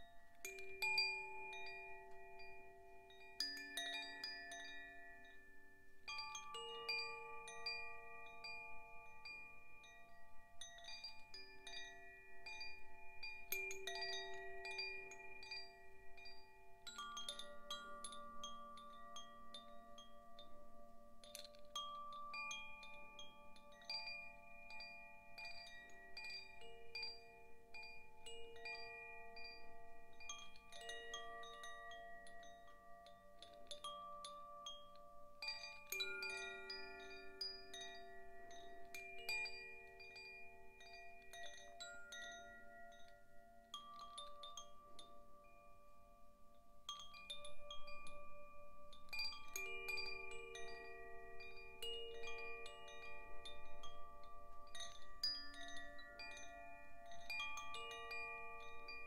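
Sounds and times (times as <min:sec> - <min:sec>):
wind chime ringing: 0:00.0 - 0:59.0.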